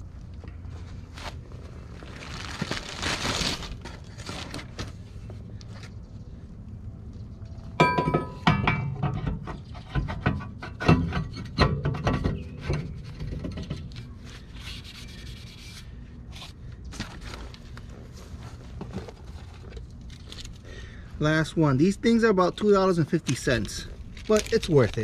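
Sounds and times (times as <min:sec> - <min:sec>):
ringing metal clank: 0:07.8 - 0:09.3
metal scraping and knocking: 0:07.8 - 0:14.0.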